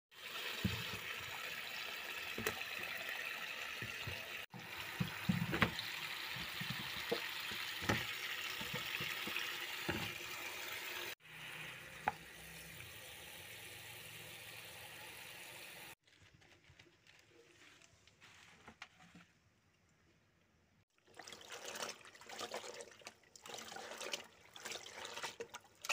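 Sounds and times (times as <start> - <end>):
tap water splashing onto vegetables: 2.2 - 3.1, 3.7 - 10.5.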